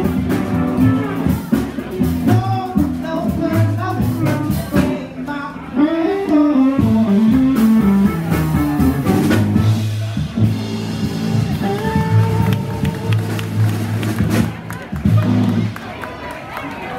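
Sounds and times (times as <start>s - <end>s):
live blues band: 0.0s - 15.9s.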